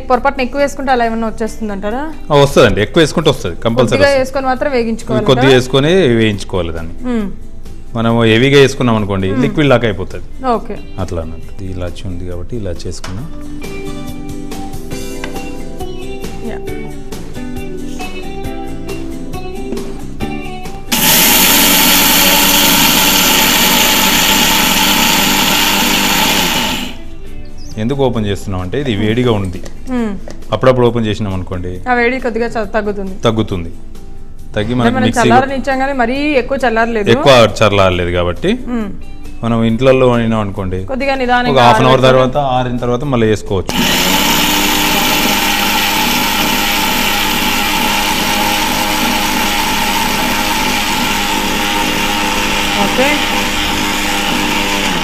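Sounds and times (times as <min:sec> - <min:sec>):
guitar music: 0:03.6 - 0:06.0, 0:09.1 - 0:11.6, 0:13.3 - 0:22.3, 0:33.8 - 0:35.9, 0:41.2 - 0:42.7
mixer grinder running: 0:20.9 - 0:27.1, 0:43.7 - 0:55.0.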